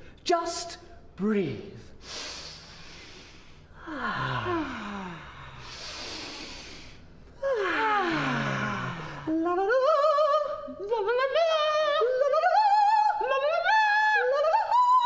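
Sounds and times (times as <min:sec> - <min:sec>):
person singing operatic vocal exercise: 0:07.4 - 0:15.0.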